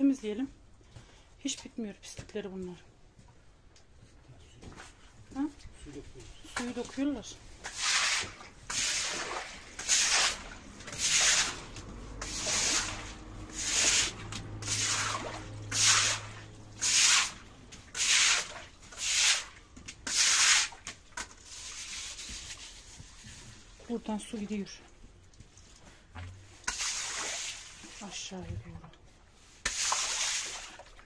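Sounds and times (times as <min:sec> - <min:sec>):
rasping scraping strokes: 0:07.6 - 0:23.6.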